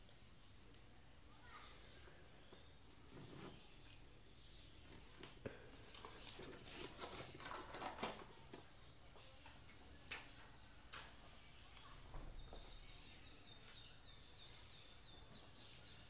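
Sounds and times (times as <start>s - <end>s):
packaging rustling and crinkling: 4.8s - 8.7s.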